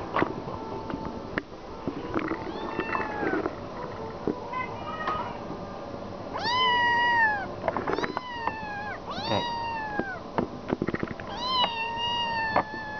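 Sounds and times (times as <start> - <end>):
kitten meowing: 6.4 - 10.2, 11.3 - 12.9.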